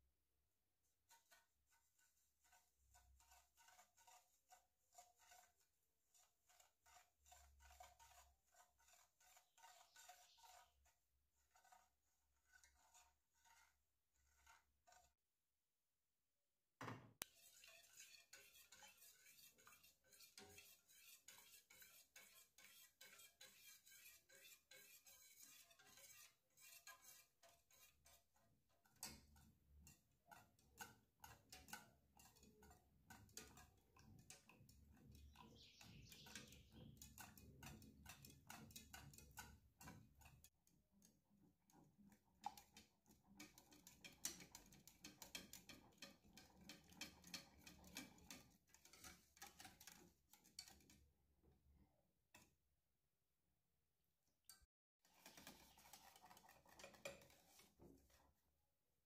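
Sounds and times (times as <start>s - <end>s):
whisk clicking against saucepan: 1.1s - 10.6s, 17.2s - 51.0s, 55.1s - 58.2s.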